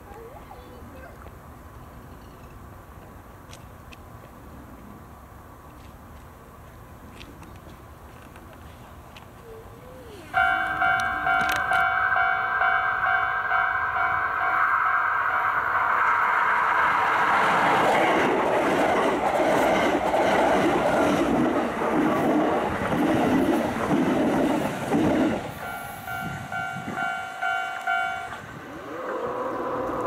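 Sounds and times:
level crossing warning bell: 10.3s - 16.4s, 25.6s - 28.6s
train wheels clacking: 10.4s - 28.5s.

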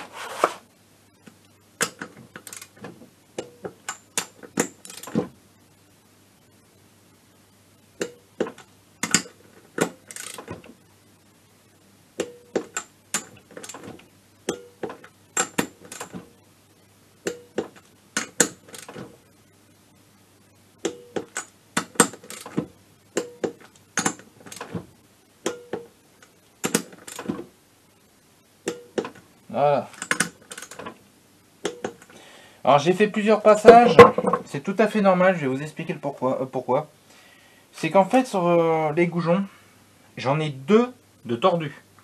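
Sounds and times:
torque wrench ratcheting: 10.1s - 10.5s.

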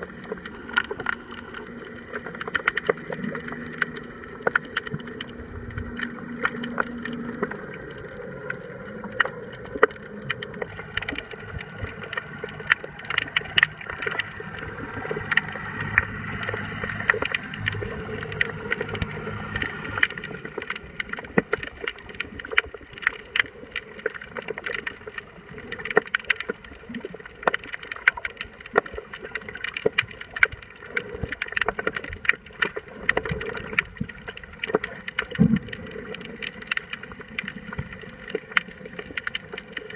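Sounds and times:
steady hum: 0.0s - 21.5s
underwater clicks and crackles: 0.0s - 39.9s.

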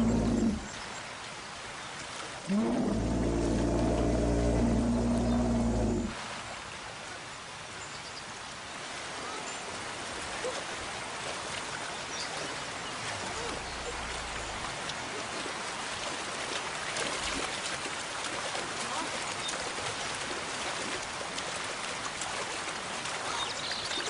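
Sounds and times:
steady watery hiss: 0.0s - 1.5s, 2.3s - 6.5s, 10.8s - 19.4s.

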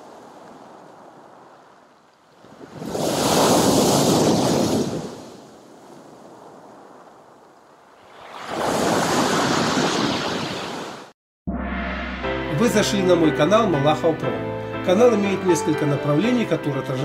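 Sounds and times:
waves breaking on pebble shore: 0.0s - 7.1s, 7.9s - 11.1s.

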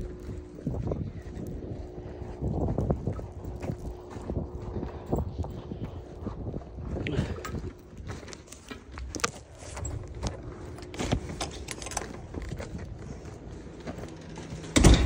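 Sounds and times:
footsteps on snow: 0.0s - 14.8s
metallic clicks and jingles: 7.3s - 15.0s
steel door opening: 14.1s - 15.0s.

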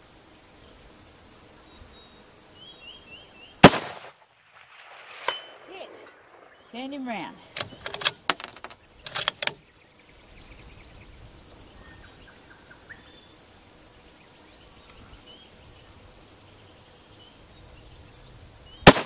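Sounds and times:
loud rifle shot: 3.6s - 6.6s
faint bird chirps: 8.8s - 13.4s.

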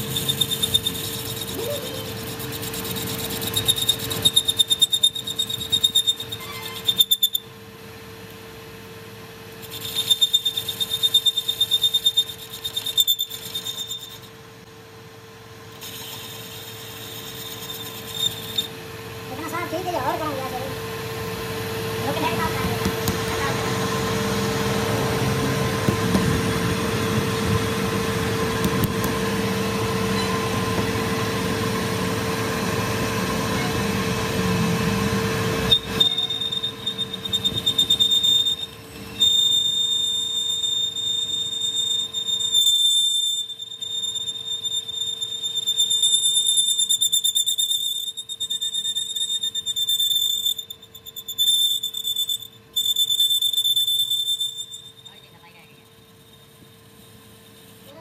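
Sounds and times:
metal lathe humming: 0.0s - 7.2s, 15.7s - 46.0s
cutting tool squealing on steel: 0.0s - 7.5s, 9.5s - 14.4s, 15.7s - 20.7s, 26.0s - 30.8s, 35.6s - 58.0s.

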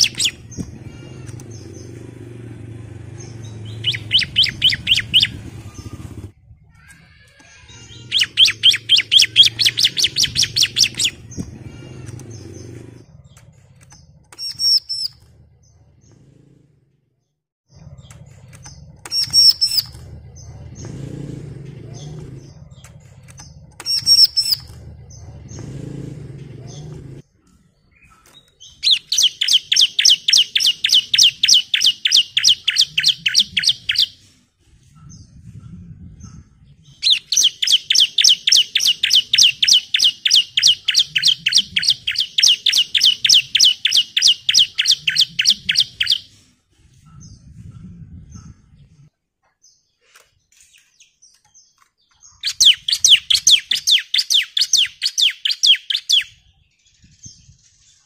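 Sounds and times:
bird singing rapid high notes: 0.0s - 6.3s, 7.4s - 15.9s, 17.8s - 21.0s, 21.9s - 25.8s, 27.9s - 34.2s, 37.0s - 46.4s, 50.9s - 56.6s.

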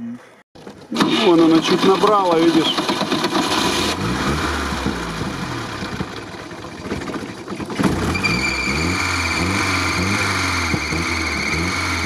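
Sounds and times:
petrol engine running unevenly: 1.0s - 8.2s.

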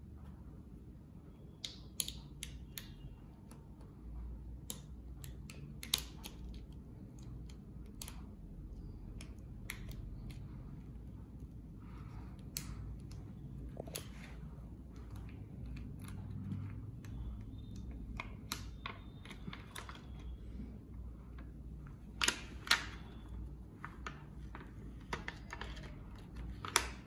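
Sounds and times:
plastic sheet peeling crackle: 22.0s - 27.0s.

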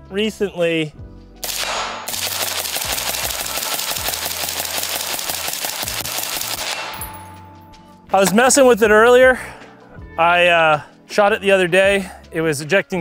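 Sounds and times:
suppressed rifle rapid shots: 1.4s - 7.2s.

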